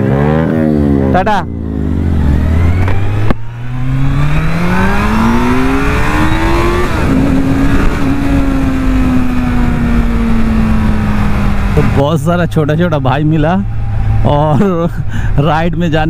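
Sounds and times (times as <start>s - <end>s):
motorcycle engine accelerating: 0.0s - 14.8s
wind noise: 2.1s - 12.0s.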